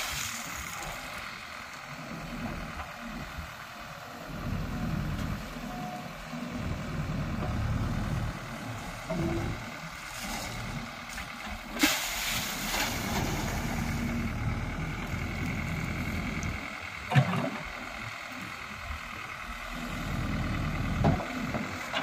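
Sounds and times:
diesel engine running: 0:00.0 - 0:22.0.

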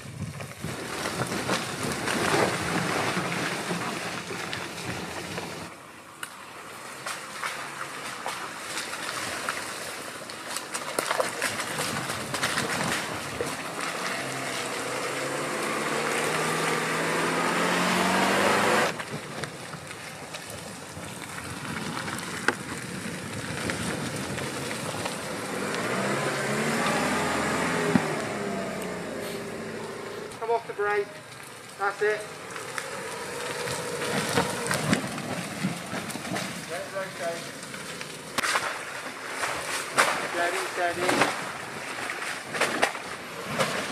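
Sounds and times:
car engine revving: 0:12.7 - 0:19.0, 0:24.2 - 0:38.6.

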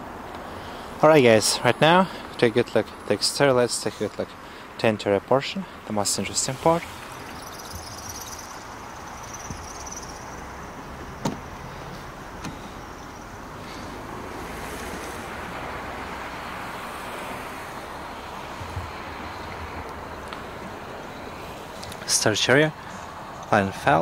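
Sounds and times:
steady hiss: 0:00.3 - 0:24.0
car door latch clicks: 0:11.0 - 0:11.5, 0:12.4 - 0:12.7.

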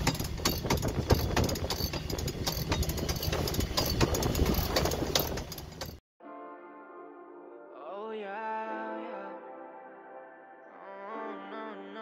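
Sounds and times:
boat engine humming: 0:00.0 - 0:06.0
irregular clicks and knocks: 0:00.0 - 0:06.0.

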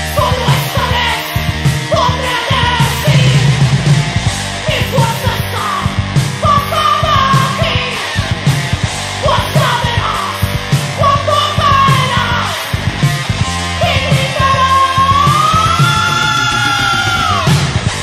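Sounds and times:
electric guitar lead lines: 0:00.0 - 0:18.0
heavy metal band playing: 0:00.0 - 0:18.0
rapid drum hits: 0:00.4 - 0:10.0.

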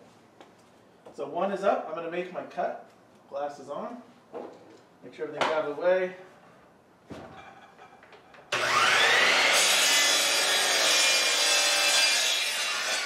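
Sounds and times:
saw blade cutting wood: 0:08.5 - 0:13.0.

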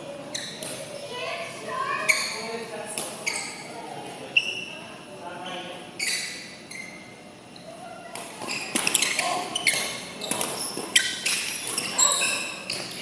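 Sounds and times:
shoes squeaking on court: 0:00.3 - 0:01.2, 0:01.9 - 0:02.5, 0:03.1 - 0:03.7, 0:05.4 - 0:13.0
rackets hitting shuttlecock: 0:08.1 - 0:13.0.

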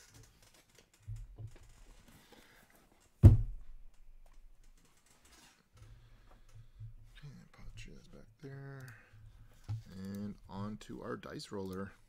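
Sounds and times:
faint handling ticks and rustles: 0:03.9 - 0:12.0.

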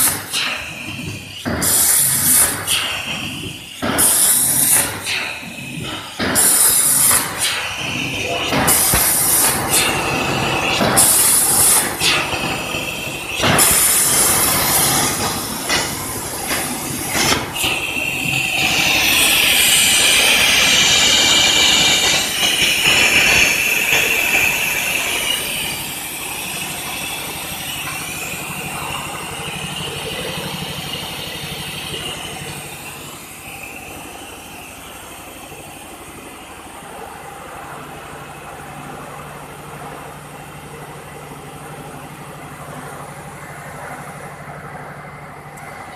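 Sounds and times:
plasma torch arc hissing: 0:00.0 - 0:34.4
steady hum: 0:00.0 - 0:45.9.

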